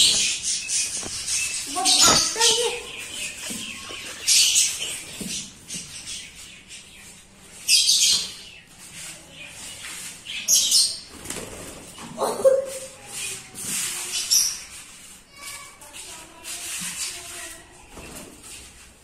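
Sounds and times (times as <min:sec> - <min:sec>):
chick flapping wings: 0:11.1 - 0:12.8.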